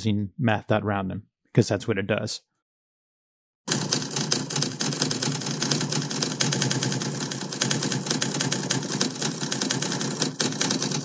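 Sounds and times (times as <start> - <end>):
typewriter keystroke clicks: 5.6 - 11.0.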